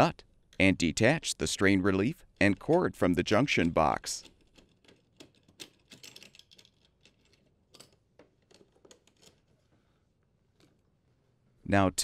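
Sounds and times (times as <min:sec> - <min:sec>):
faint clicks and rattles of wires: 0:02.2 - 0:11.0.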